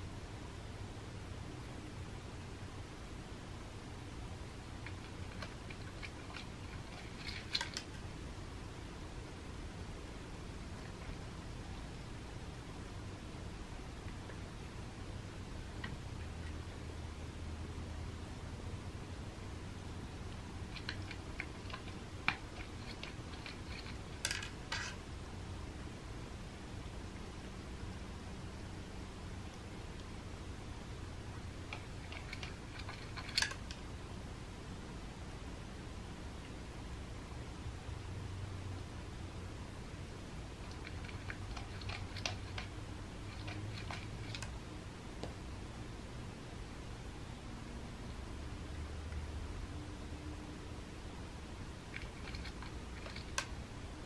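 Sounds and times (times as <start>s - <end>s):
kibble rattling: 4.8s - 8.0s, 20.6s - 25.0s, 31.6s - 33.8s, 40.6s - 44.5s, 51.9s - 53.6s.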